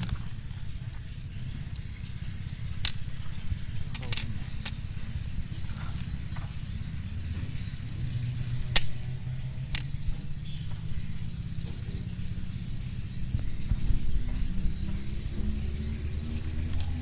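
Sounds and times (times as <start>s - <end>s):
stones clicking on steel rail: 0.0s - 1.9s, 2.8s - 4.8s, 8.7s - 10.2s
low steady rumble: 0.0s - 17.0s.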